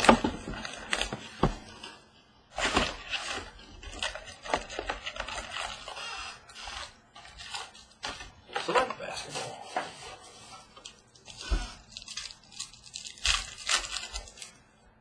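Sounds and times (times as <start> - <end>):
cardboard box tearing: 2.5 - 9.4, 11.3 - 14.5
plastic wrapper crinkling: 3.0 - 14.6.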